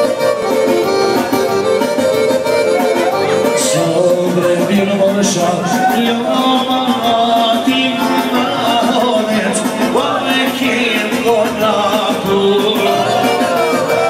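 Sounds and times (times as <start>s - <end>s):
amplified band playing: 0.0s - 14.0s
man singing through microphone: 3.3s - 14.0s.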